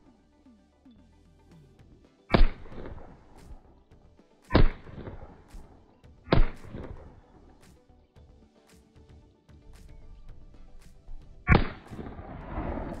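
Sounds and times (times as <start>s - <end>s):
pistol shots: 2.3s - 3.1s, 4.5s - 5.4s, 6.3s - 7.2s, 11.5s - 13.0s.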